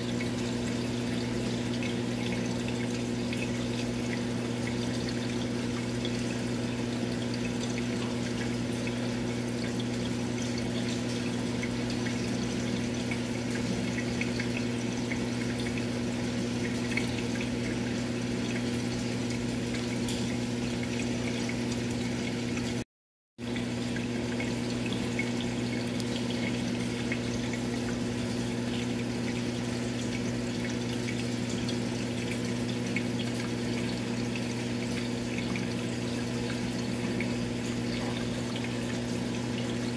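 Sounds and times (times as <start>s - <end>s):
aquarium pump hum: 0.0s - 22.8s, 23.4s - 39.9s.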